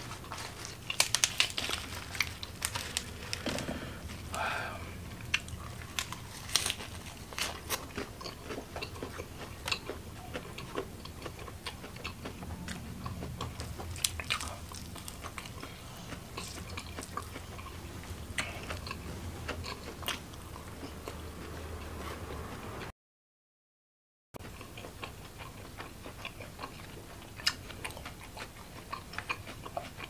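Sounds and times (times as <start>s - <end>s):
chewing and biting food: 0.0s - 4.4s, 5.1s - 22.8s, 24.4s - 30.0s.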